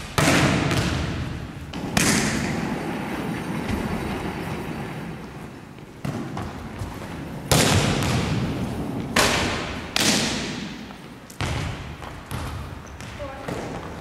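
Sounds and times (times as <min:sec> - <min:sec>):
volleyball smacks on gym floor: 0:00.1 - 0:02.4, 0:07.5 - 0:08.4, 0:09.1 - 0:13.8.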